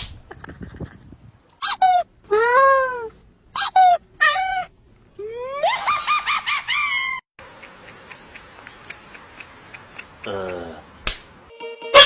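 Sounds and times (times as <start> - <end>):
cat meowing: 3.8 - 4.7.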